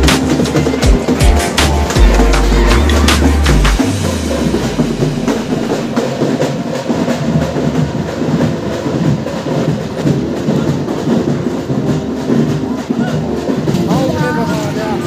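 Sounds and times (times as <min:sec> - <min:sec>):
mixed voices: 0:00.0 - 0:05.4, 0:12.5 - 0:15.0
faint music: 0:00.0 - 0:15.0
steady rumbling noise: 0:00.0 - 0:15.0.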